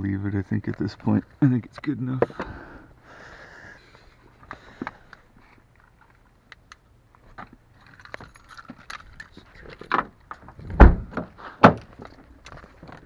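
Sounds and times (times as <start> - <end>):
rustling and small clicks: 4.4 - 10.8, 11.8 - 13.0
loud thumps: 10.6 - 11.8.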